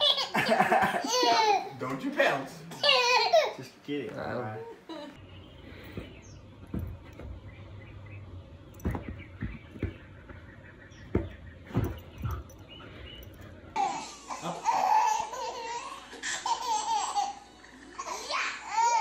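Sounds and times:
baby laughing: 0.0 - 1.7, 2.7 - 3.6, 13.8 - 19.0
soft thumps: 5.8 - 7.5, 8.7 - 13.4.

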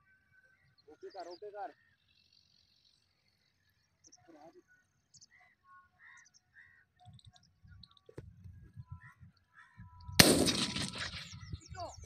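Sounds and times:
faint bird chirps: 0.0 - 10.2, 11.0 - 12.0
shotgun shot with echo: 10.2 - 11.4.

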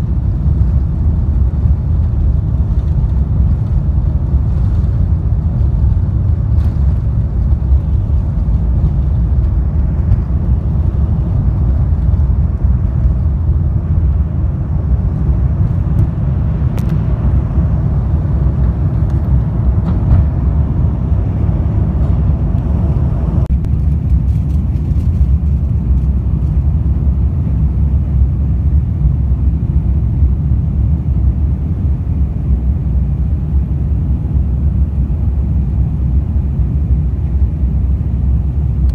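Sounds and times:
jet engines rumbling: 0.0 - 38.9.

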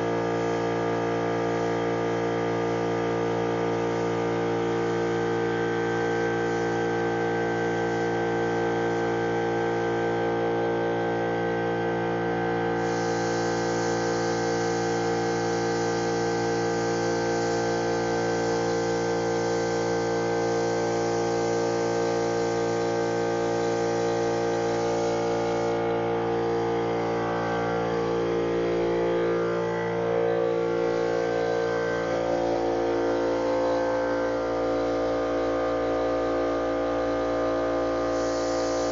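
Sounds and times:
paint spray gun hissing: 0.0 - 10.4, 12.6 - 38.9
machine hum: 22.3 - 38.9.

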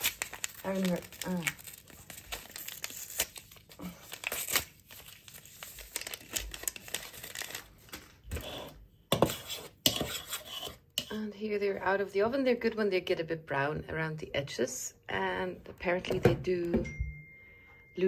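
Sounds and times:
paper crinkling and tearing: 0.0 - 8.7
spoon scraping in a bowl: 8.3 - 11.2.

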